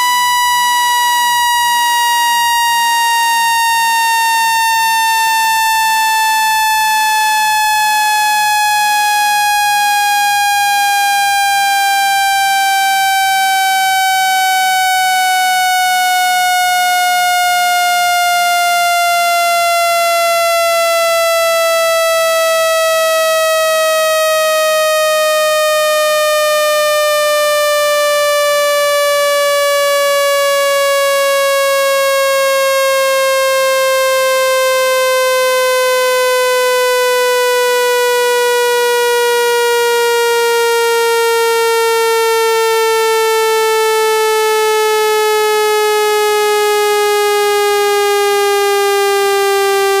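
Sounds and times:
buzzy electronic tone falling in pitch: 0.0 - 50.0.

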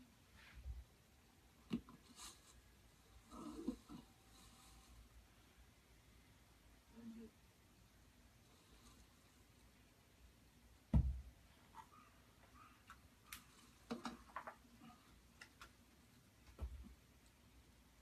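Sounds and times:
dull thump: 10.9 - 11.3.

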